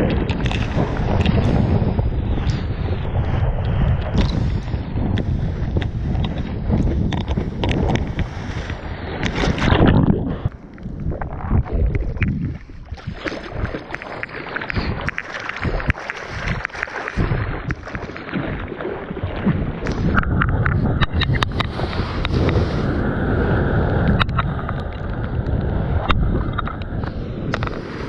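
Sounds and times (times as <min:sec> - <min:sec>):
wind buffeting microphone: 0:00.0 - 0:28.0
water sloshing against board: 0:04.0 - 0:22.6
arms splashing in water: 0:05.8 - 0:10.5, 0:11.2 - 0:22.7.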